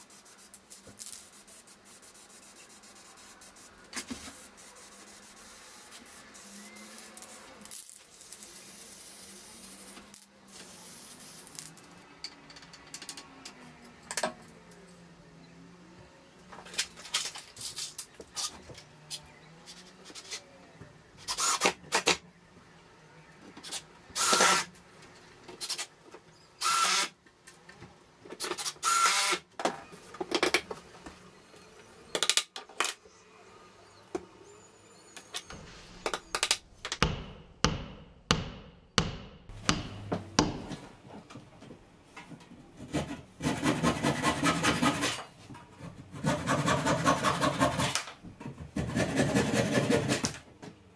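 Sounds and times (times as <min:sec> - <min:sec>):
cordless drill boring into wood: 0:26.6 - 0:27.1, 0:28.8 - 0:29.4.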